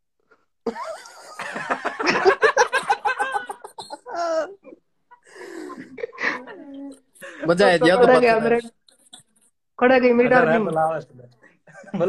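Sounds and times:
loud laughter: 0.7s - 4.6s.

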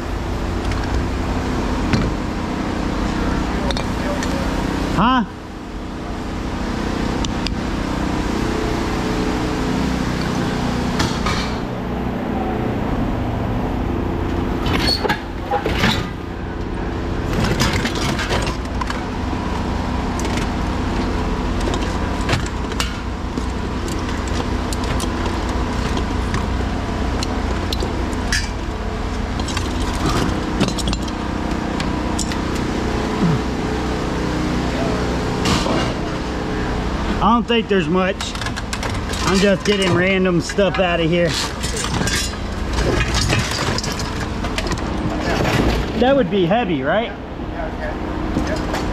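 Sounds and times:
steady engine-like hum: 0.0s - 48.9s
scrap metal clanking: 38.2s - 46.0s.

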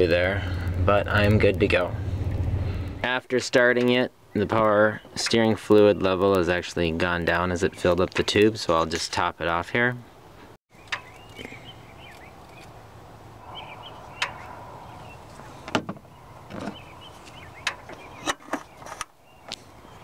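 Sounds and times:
steady low hum: 0.0s - 3.0s.

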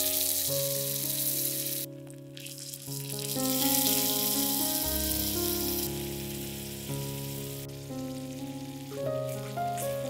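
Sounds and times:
sauce sizzling: 0.0s - 10.0s.

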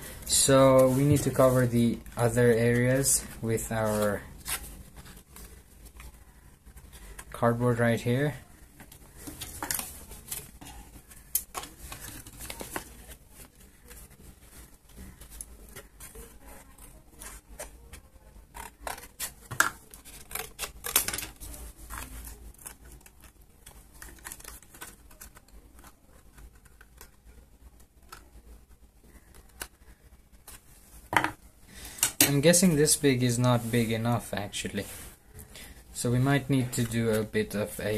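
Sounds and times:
card rustling and tapping: 8.7s - 14.2s.

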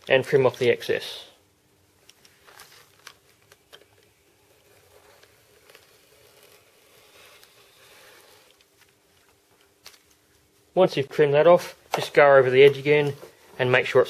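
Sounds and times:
plastic film crinkling: 2.2s - 10.3s.

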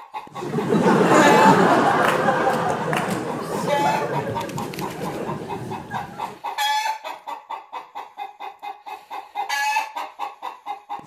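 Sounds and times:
hen clucking: 3.6s - 11.0s.

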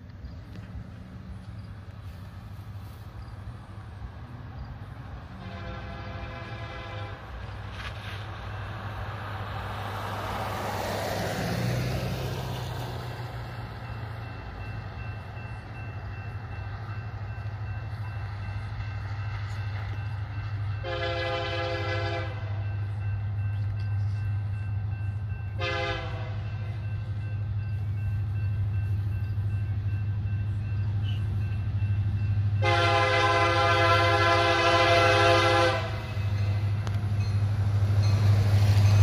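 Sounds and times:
diesel locomotive engine rumble: 0.0s - 39.0s
multi-note train horn: 5.1s - 7.5s, 20.8s - 22.8s, 25.5s - 26.6s, 32.6s - 36.2s.

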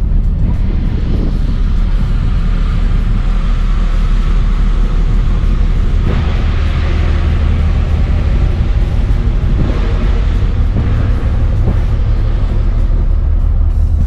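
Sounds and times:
ferry engines rumbling: 0.0s - 14.0s.

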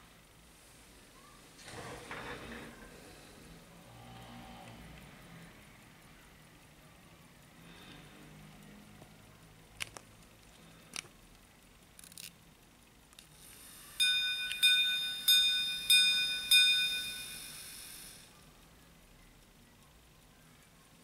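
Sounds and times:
small watch clicks: 7.4s - 12.4s
pocket watch gong strikes: 14.0s - 18.0s.

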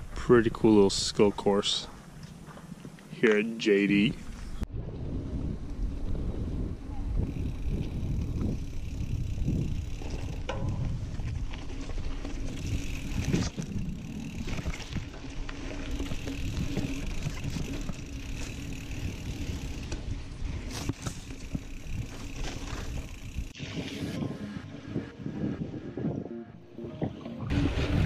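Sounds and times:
bike tyres rolling rumble: 0.0s - 3.2s, 4.0s - 26.2s, 27.0s - 28.0s
bike clicks and rattles: 6.9s - 23.6s.

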